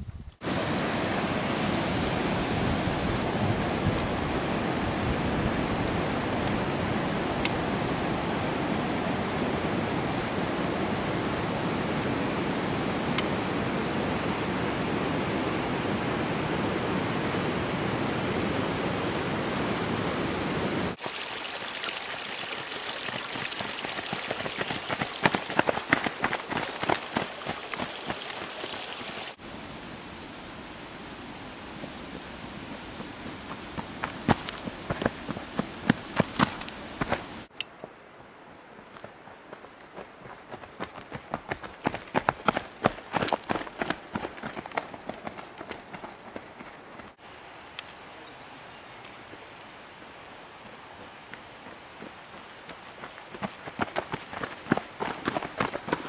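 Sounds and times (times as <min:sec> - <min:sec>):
mountain stream rushing: 0:00.4 - 0:47.5, 0:49.2 - 0:56.0
footsteps crunching on rocky trail: 0:23.6 - 0:28.8, 0:32.2 - 0:38.0, 0:38.8 - 0:47.2, 0:50.6 - 0:56.0.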